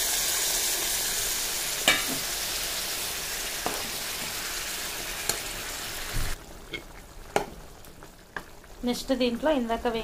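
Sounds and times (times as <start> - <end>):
curry sizzling in a pan: 0.0 - 10.0.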